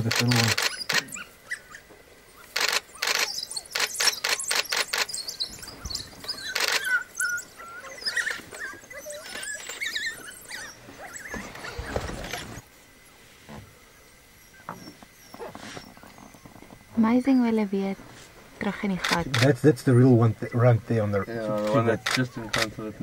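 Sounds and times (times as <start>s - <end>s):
sharp clicks: 0.0s - 1.1s, 2.4s - 5.2s
wild dogs twittering: 0.0s - 12.6s, 13.9s - 17.4s, 18.9s - 23.0s.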